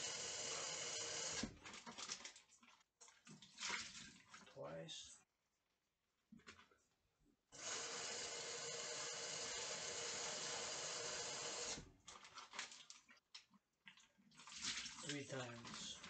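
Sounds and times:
kitchen tap running: 0.0s - 2.3s, 7.6s - 13.0s
water splashing and knocking in sink: 1.4s - 4.6s, 11.9s - 16.0s.

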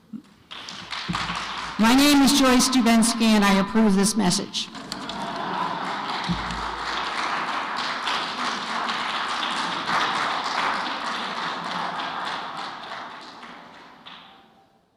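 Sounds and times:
audience applauding: 0.5s - 2.6s, 4.7s - 14.5s.

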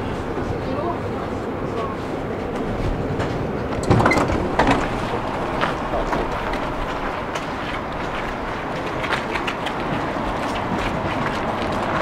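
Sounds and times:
tram humming and rumbling: 0.0s - 12.0s.

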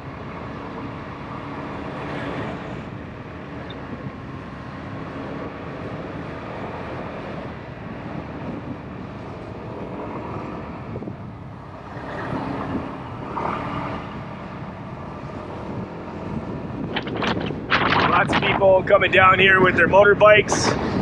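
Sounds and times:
road and wind noise: 0.0s - 21.0s.

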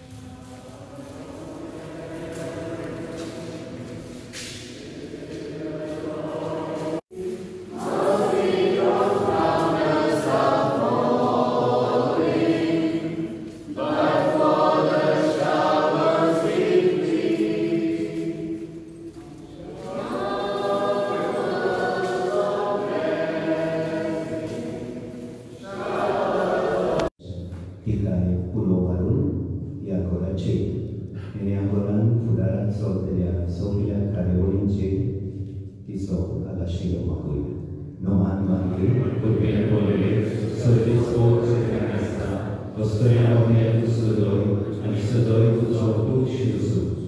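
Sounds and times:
group singing a hymn: 0.0s - 27.2s, 38.6s - 47.0s.

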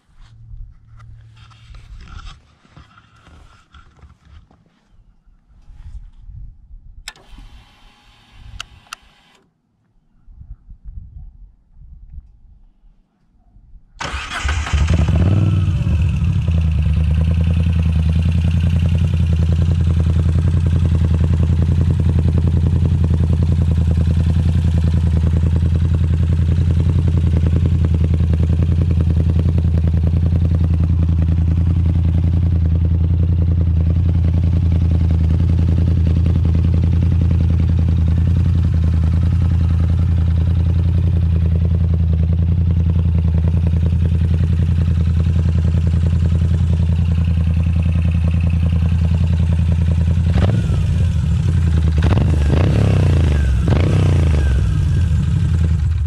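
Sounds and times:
motorcycle engine starting and idling: 7.1s - 9.4s, 14.0s - 56.0s.

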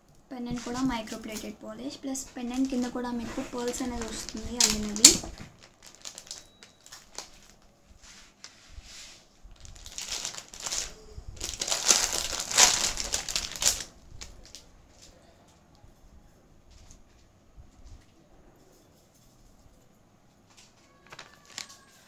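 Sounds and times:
paper wrapping crinkling: 0.5s - 8.8s, 9.4s - 15.2s, 20.5s - 22.0s.

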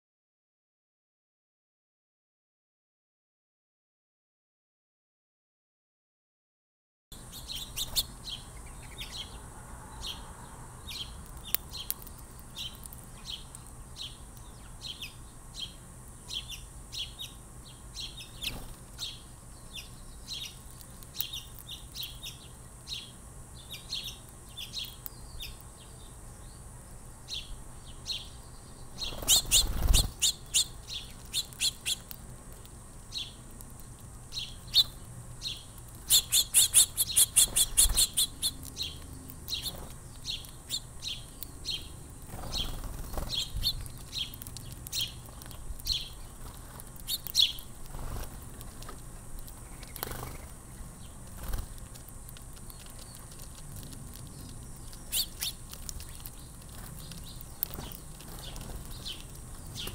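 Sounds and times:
small birds chirping: 7.1s - 59.9s
rapid clicking chatter or fluttering: 42.2s - 50.6s, 51.3s - 54.6s.

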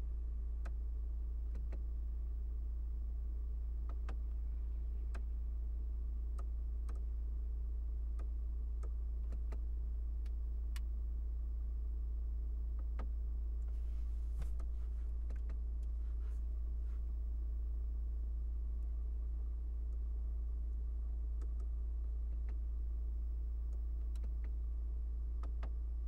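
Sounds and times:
low cabin hum: 0.0s - 26.0s
control knob clicks: 1.5s - 1.8s, 23.7s - 24.6s.

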